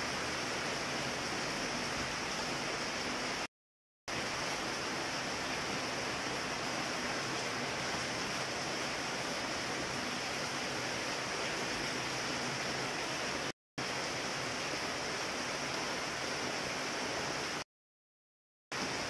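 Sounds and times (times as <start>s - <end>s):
rain falling on leaves: 4.1s - 17.6s.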